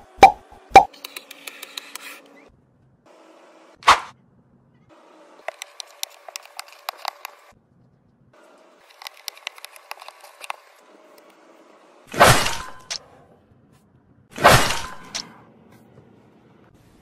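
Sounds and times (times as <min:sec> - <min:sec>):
plastic cubes clicking: 0:05.5 - 0:07.4, 0:08.9 - 0:10.6.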